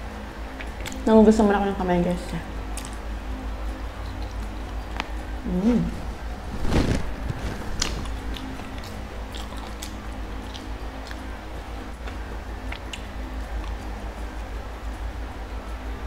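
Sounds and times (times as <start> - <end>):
person chewing food: 6.0 - 11.4, 12.0 - 13.8
mouth clicks and smacks: 7.7 - 11.2.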